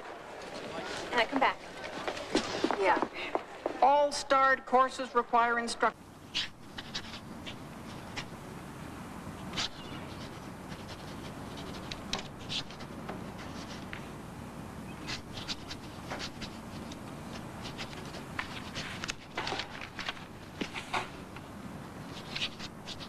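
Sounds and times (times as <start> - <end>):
low room hum: 0.0 - 23.0
pens scratching on paper: 6.3 - 8.4, 9.5 - 14.0, 15.0 - 21.0, 22.0 - 23.0.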